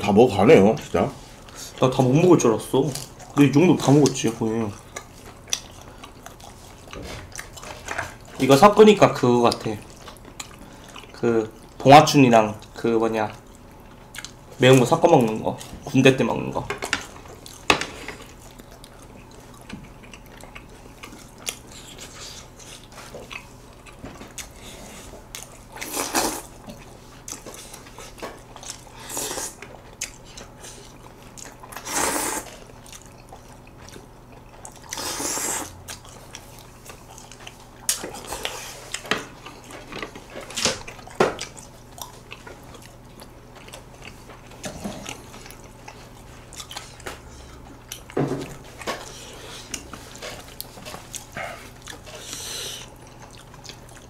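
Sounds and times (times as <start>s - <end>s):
wet chewing and biting: 2.8s - 8.5s, 17.1s - 54.0s
loud slurps of noodles: 31.8s - 32.5s, 35.0s - 35.7s.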